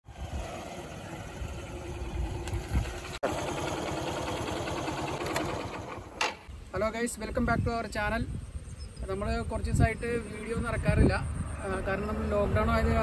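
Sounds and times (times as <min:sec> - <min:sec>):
motorcycle engine running: 0:00.0 - 0:06.4
motorcycle engine idling: 0:00.1 - 0:06.4.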